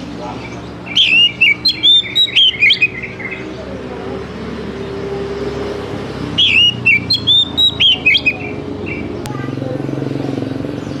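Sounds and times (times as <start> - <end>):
bird singing whistled notes: 0.4 - 3.5, 6.4 - 9.2.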